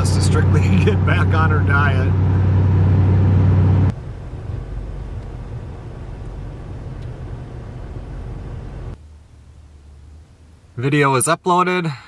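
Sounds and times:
engine and tyre drone: 0:00.0 - 0:09.0
low rumble inside car: 0:00.0 - 0:10.8.

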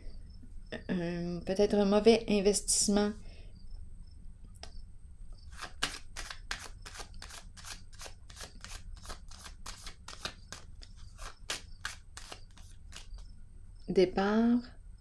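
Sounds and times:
cards being shuffled: 0:05.5 - 0:13.2.

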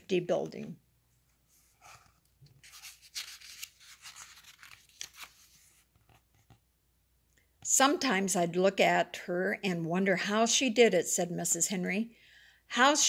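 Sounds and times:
paper page turning: 0:01.5 - 0:06.6.

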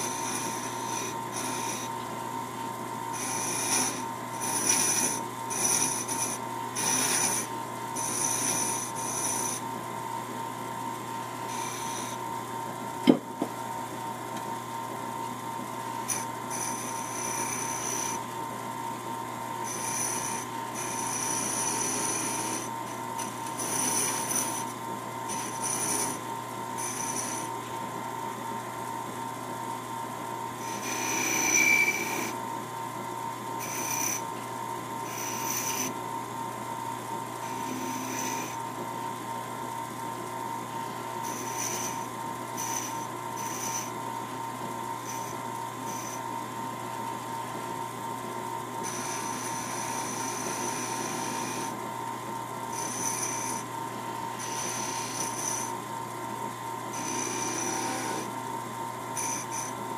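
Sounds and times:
hand tool scraping spinning wood: 0:00.0 - 0:02.1, 0:03.1 - 0:09.7, 0:11.3 - 0:12.2, 0:16.0 - 0:18.3, 0:19.6 - 0:26.2, 0:26.8 - 0:27.5, 0:30.6 - 0:32.4, 0:33.6 - 0:34.4, 0:35.0 - 0:36.0, 0:41.2 - 0:44.0, 0:48.8 - 0:51.8, 0:52.7 - 0:53.6, 0:54.3 - 0:55.7, 0:56.9 - 0:58.3, 0:59.2 - 0:59.7
wood lathe humming: 0:00.0 - 0:59.9.

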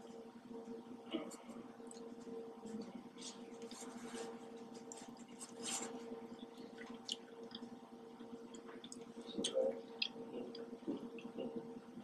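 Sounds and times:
person chewing wetly: 0:06.5 - 0:11.5.

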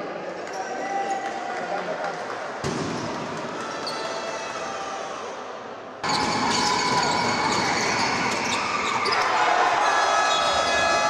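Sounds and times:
basketball court noise: 0:02.6 - 0:04.1, 0:06.0 - 0:11.0.

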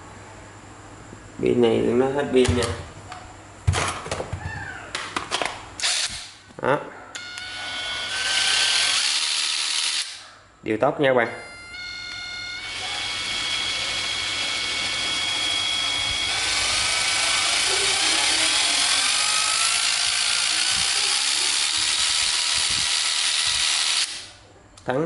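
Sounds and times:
impact driver motor whine: 0:07.2 - 0:10.2, 0:11.4 - 0:24.3.

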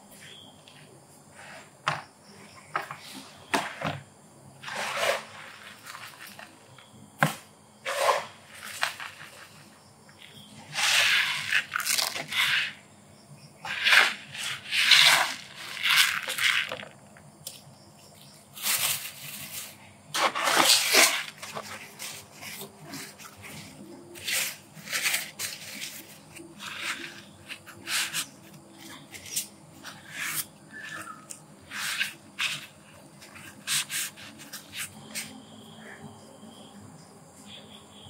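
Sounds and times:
litter scoop scraping litter: 0:04.6 - 0:06.6, 0:07.8 - 0:09.6, 0:10.6 - 0:12.8, 0:13.6 - 0:16.9, 0:18.6 - 0:31.1, 0:31.7 - 0:35.4.

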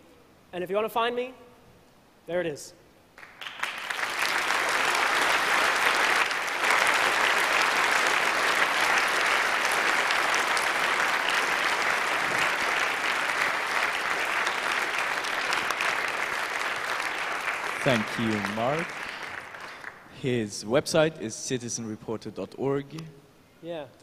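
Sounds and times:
crowd applauding: 0:03.2 - 0:20.2.

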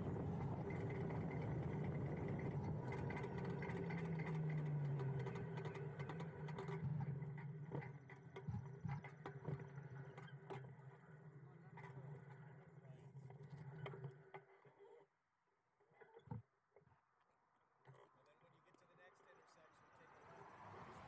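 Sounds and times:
wind and road noise: 0:00.0 - 0:10.3, 0:20.0 - 0:21.0.

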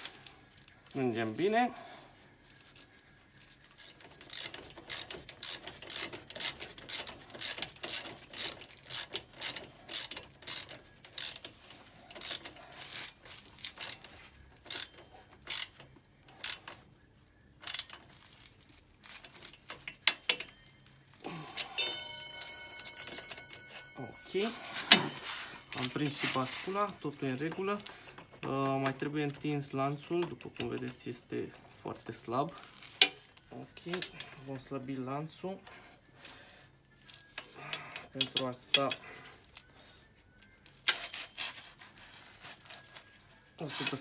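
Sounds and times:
sharp metal clang: 0:21.6 - 0:26.1.

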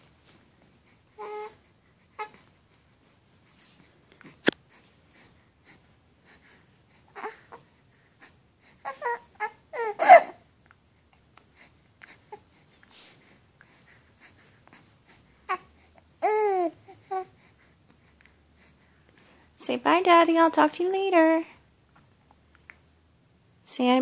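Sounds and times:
baby cooing: 0:01.2 - 0:01.6, 0:08.8 - 0:10.4, 0:15.5 - 0:17.3.

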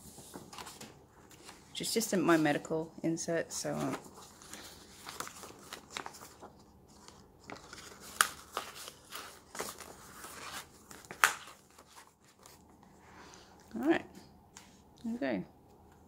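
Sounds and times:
paper rustling: 0:00.0 - 0:01.7, 0:03.6 - 0:12.9.

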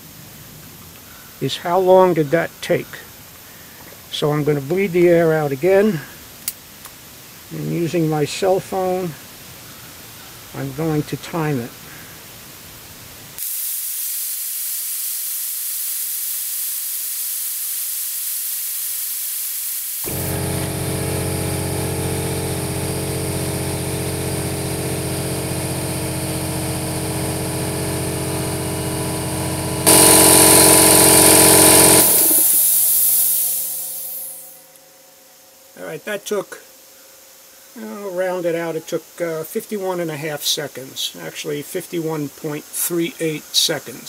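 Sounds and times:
compressed air hissing: 0:13.4 - 0:28.4, 0:29.8 - 0:34.7
loud air hiss: 0:13.4 - 0:34.7
air compressor humming: 0:19.8 - 0:34.7.

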